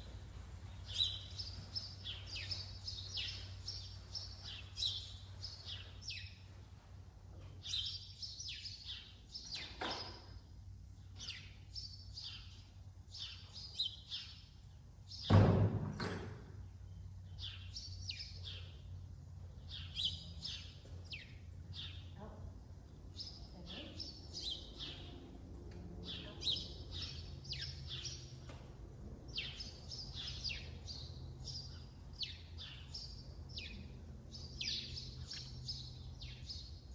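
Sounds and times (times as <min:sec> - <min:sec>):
small birds chirping: 0:00.0 - 0:06.6, 0:07.3 - 0:15.3, 0:16.7 - 0:36.9
steady low hum: 0:00.0 - 0:09.4.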